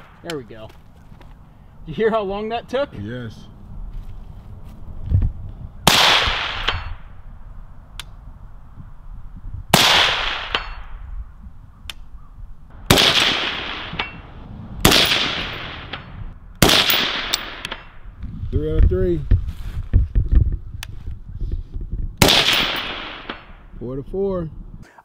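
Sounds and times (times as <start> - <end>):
suppressed rifle shots echoing: 12.8 - 17.9, 22.2 - 23.6.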